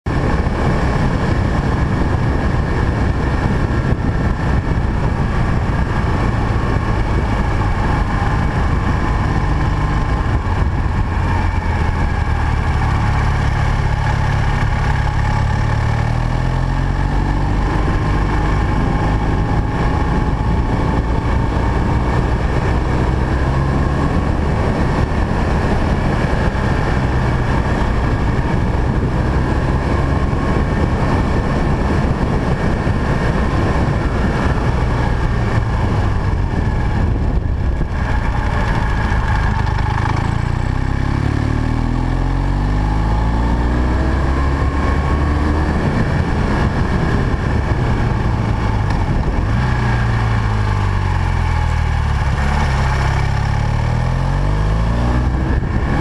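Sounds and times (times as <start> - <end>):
motorcycle engine running: 0.0 - 56.0
wind rushing: 0.1 - 56.0.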